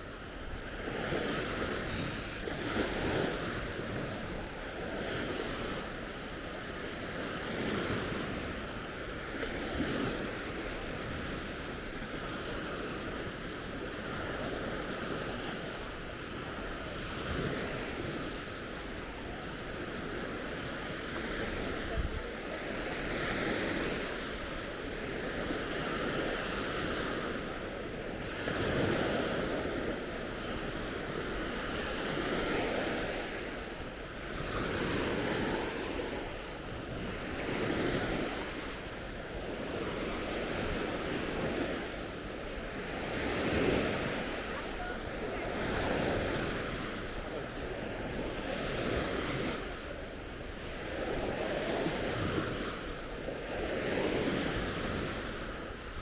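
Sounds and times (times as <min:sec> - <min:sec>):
waves breaking on sandy beach: 0:00.0 - 0:56.0.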